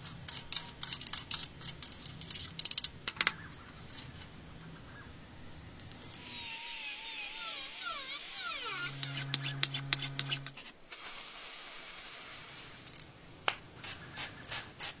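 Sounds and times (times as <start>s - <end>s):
rotary tool whining: 6.0s - 10.8s.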